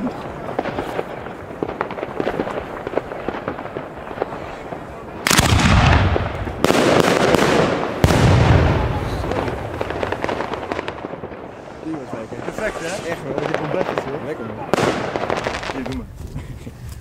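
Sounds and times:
distant firecracker pops: 0:00.0 - 0:16.0
firework shell booms: 0:00.1 - 0:16.0.

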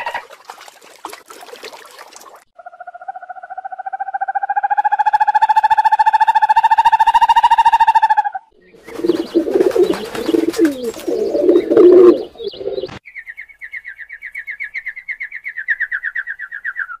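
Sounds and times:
pigeons cooing: 0:08.7 - 0:13.0
wing flutter: 0:08.8 - 0:13.0.

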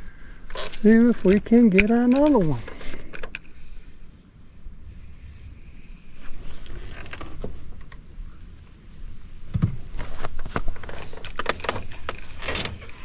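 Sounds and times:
dull thump: 0:09.5 - 0:09.8.

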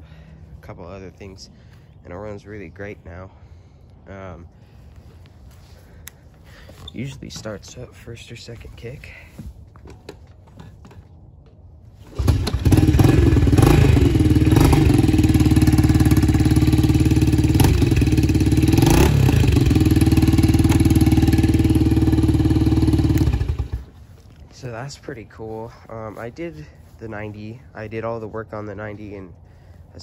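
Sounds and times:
dirt bike engine idling: 0:12.1 - 0:28.5.

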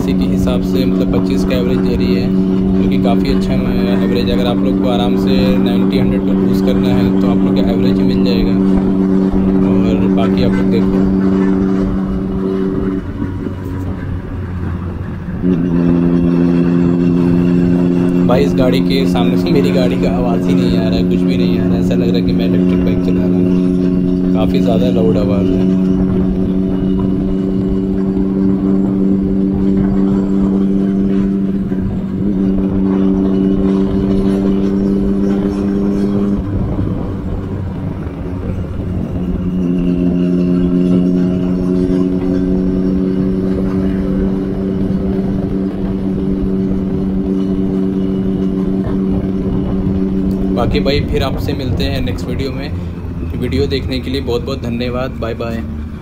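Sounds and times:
motorcycle engine droning: 0:00.0 - 0:56.0
wind rush: 0:24.3 - 0:41.0, 0:42.3 - 0:54.6.

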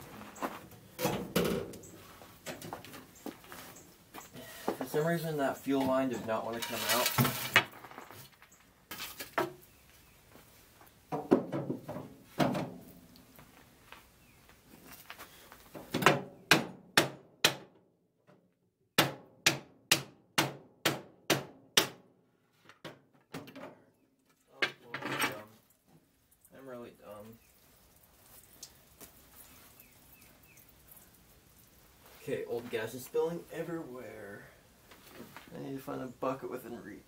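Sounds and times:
knocks on metal fuel tank: 0:11.1 - 0:12.8.

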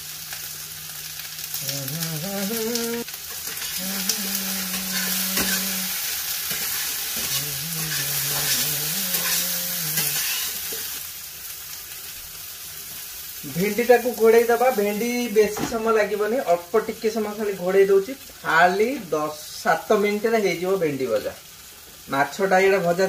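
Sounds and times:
vegetables sizzling in oil: 0:00.0 - 0:23.0
low humming notes: 0:01.6 - 0:11.0
metal spatula scraping pan: 0:04.7 - 0:11.0.

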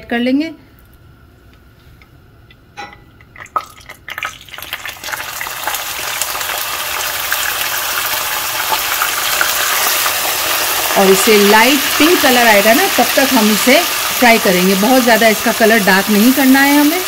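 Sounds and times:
paste sizzling in hot oil: 0:03.5 - 0:17.0.

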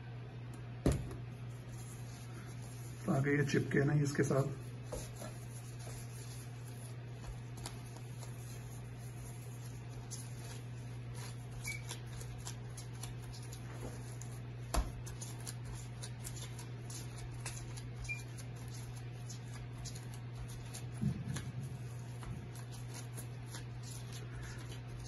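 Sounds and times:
steady low hum: 0:00.0 - 0:25.0
dough squelching: 0:00.9 - 0:25.0
plastic glove rustling: 0:01.2 - 0:25.0.

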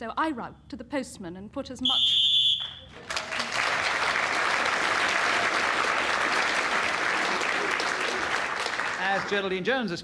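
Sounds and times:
audience applauding: 0:02.6 - 0:09.7.

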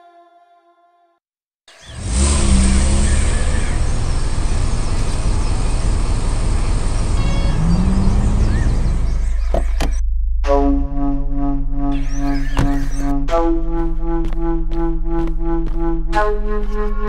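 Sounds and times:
loud motor vehicle rumble: 0:01.8 - 0:10.0.

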